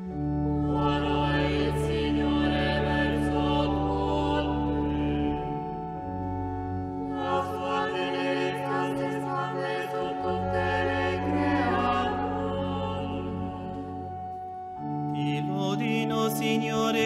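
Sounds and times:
long held chords: 0.0s - 17.0s
voices chanting: 0.6s - 5.4s, 7.1s - 13.8s.

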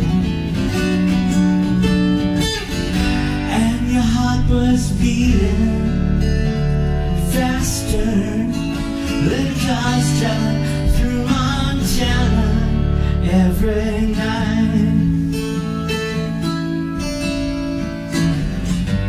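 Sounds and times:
acoustic guitar strummed and picked: 0.0s - 19.0s
man singing: 3.3s - 16.4s.

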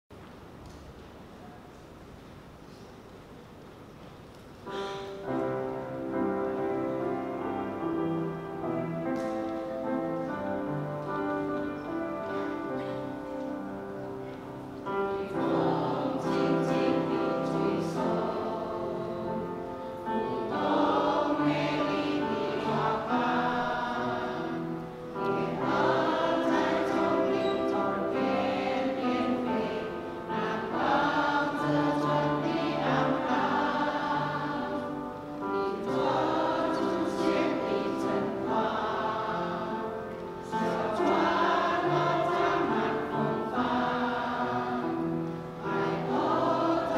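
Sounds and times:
choir singing a hymn: 4.7s - 46.9s.

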